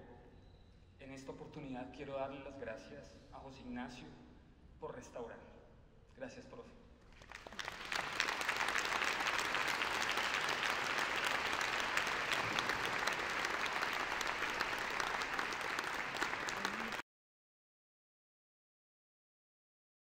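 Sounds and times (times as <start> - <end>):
audience applauding: 7.1 - 17.0.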